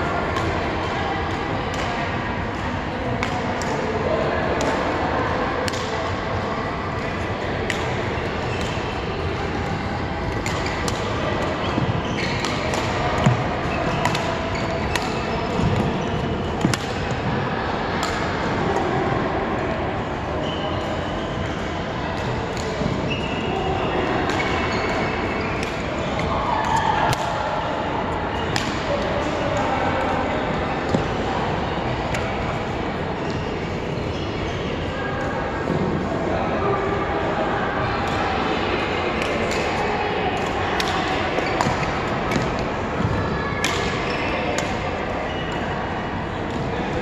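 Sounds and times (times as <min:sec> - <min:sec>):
rackets striking shuttlecock: 0:10.3 - 0:17.2, 0:25.6 - 0:27.4
shoes squeaking on court floor: 0:10.4 - 0:17.2.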